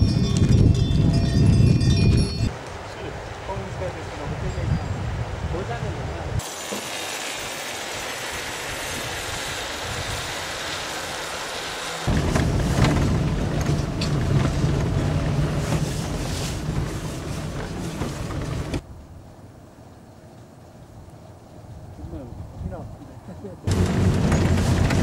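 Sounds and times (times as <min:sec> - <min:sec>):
rushing hiss: 0:06.4 - 0:12.8
vehicle engine running: 0:11.0 - 0:18.8, 0:23.7 - 0:25.0
knocks and rattles: 0:12.1 - 0:18.8, 0:23.7 - 0:25.0.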